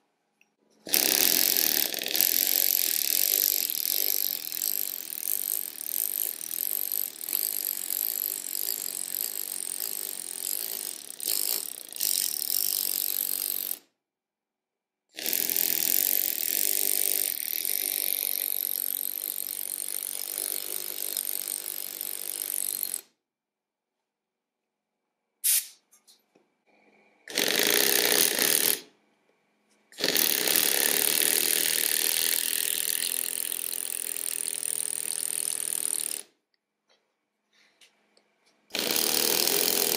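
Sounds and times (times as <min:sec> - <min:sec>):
pneumatic hammer chiselling stone: 0:00.8 - 0:13.8, 0:15.2 - 0:23.1, 0:27.3 - 0:28.9, 0:30.0 - 0:36.3, 0:38.7 - 0:39.9.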